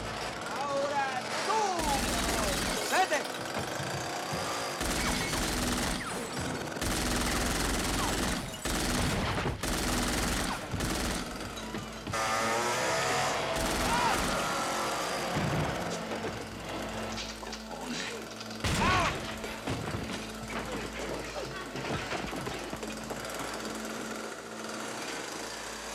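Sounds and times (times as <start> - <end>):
automatic gunfire: 1.8 - 3.6, 4.6 - 11.5, 12.4 - 16.1
film score music: 4.6 - 25.8.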